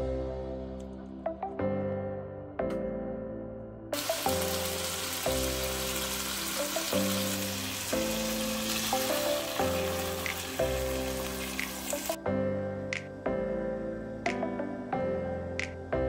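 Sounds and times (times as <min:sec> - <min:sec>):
background music: 0:00.0 - 0:16.0
food sizzling in hot oil: 0:04.0 - 0:12.2.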